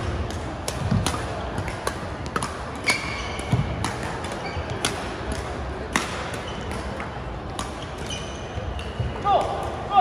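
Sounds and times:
rackets striking shuttlecock: 0:00.0 - 0:09.9
shoes squeaking on floor: 0:02.8 - 0:03.6, 0:04.4 - 0:04.9, 0:07.8 - 0:09.1.

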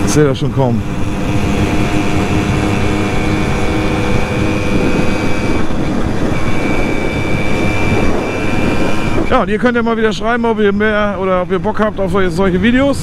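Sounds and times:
moped two-stroke engine running: 0:00.0 - 0:09.4
wind noise: 0:00.0 - 0:13.0.

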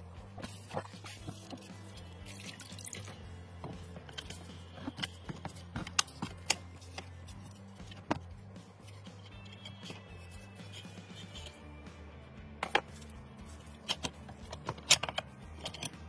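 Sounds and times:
water dripping and splashing: 0:02.2 - 0:03.2.

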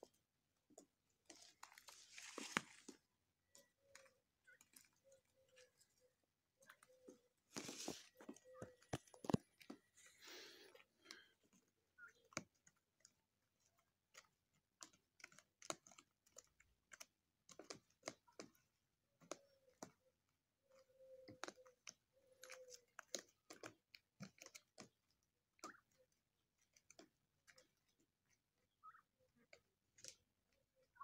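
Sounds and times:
turkeys calling softly: 0:00.0 - 0:12.8, 0:19.2 - 0:31.0
beaks pecking and tearing grass: 0:00.0 - 0:31.0.

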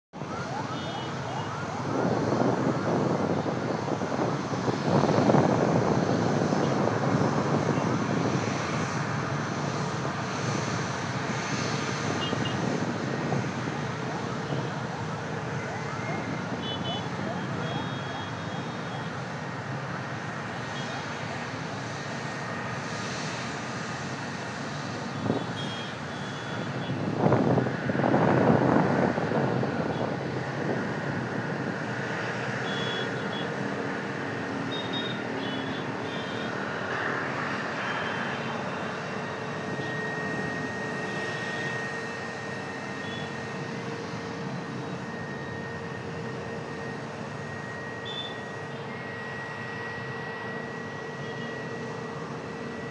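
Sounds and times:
jet engine rush: 0:00.2 - 0:52.9
thin steady whine: 0:37.4 - 0:52.9.

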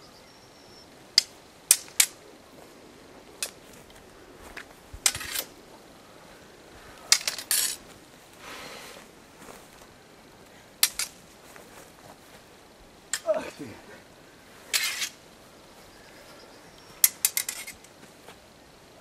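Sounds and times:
wooden swords clacking: 0:01.2 - 0:02.2, 0:03.4 - 0:03.6, 0:04.6 - 0:05.5, 0:07.1 - 0:07.8, 0:10.8 - 0:11.2, 0:13.1 - 0:13.6, 0:14.7 - 0:15.2, 0:17.0 - 0:17.9.

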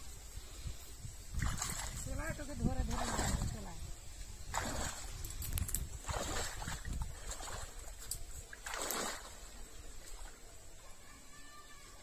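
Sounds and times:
water swishes: 0:01.1 - 0:11.1
water sloshing and splashing: 0:01.3 - 0:03.8, 0:04.4 - 0:10.9.

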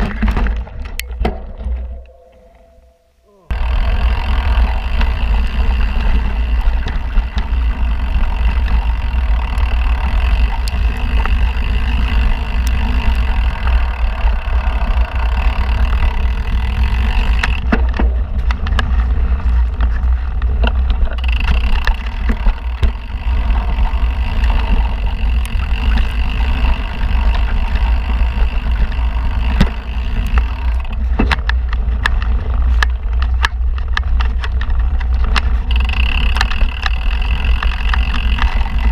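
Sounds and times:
bike clicks and knocks: 0:00.0 - 0:38.9
tyres on dirt: 0:00.0 - 0:38.9
steady high whine: 0:01.0 - 0:31.7
wind buffeting microphone: 0:03.5 - 0:38.9.

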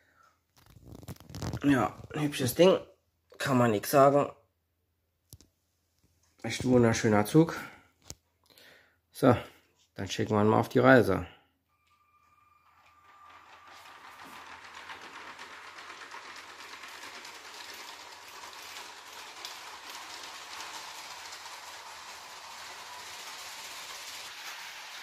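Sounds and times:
toy train wheels clattering on track: 0:12.1 - 0:25.0.

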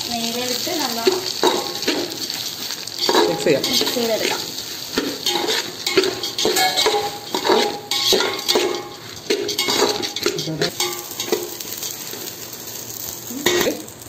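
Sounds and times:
rice grains rustling: 0:00.0 - 0:14.0
metal spoon scraping metal pot: 0:05.0 - 0:11.6.

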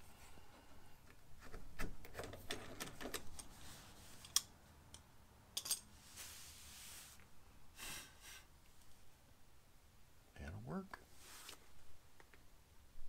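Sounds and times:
soft hiss: 0:03.4 - 0:13.0.

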